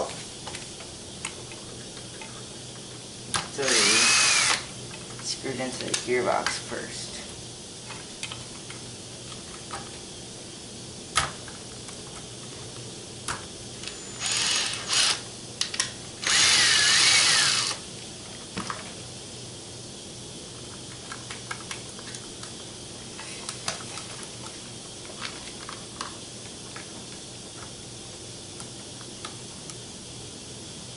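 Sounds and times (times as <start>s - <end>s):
cordless drill motor whine: 3.6s - 4.7s, 13.8s - 15.3s, 16.2s - 17.8s
drill sharp click: 3.6s - 4.7s, 16.2s - 17.8s.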